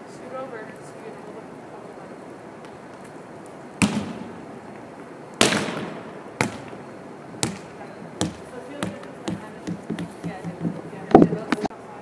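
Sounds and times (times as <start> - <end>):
volleyball smacking wooden floor: 3.8 - 4.2, 5.4 - 6.8, 7.4 - 11.6.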